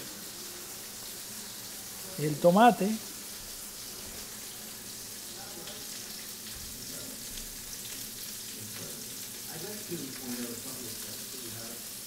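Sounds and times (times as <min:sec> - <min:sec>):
faint background voices: 0:03.0 - 0:12.0.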